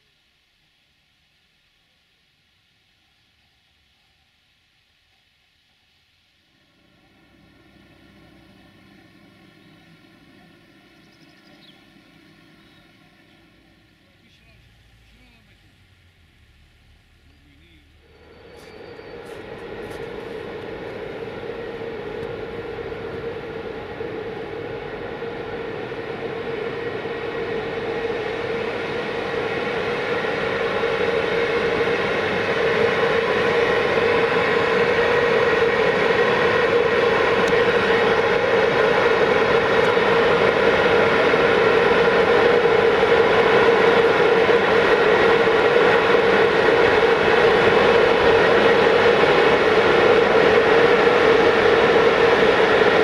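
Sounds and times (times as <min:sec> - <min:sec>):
electric locomotives whining: 0:06.6 - 0:53.0.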